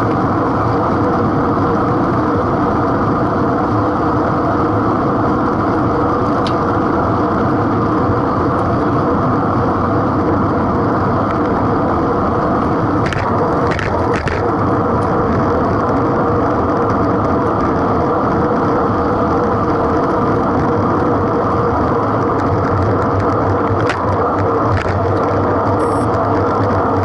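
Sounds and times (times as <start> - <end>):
tyres on road: 0.0 - 27.0
sharp bike clicks: 13.0 - 15.1, 22.4 - 26.7.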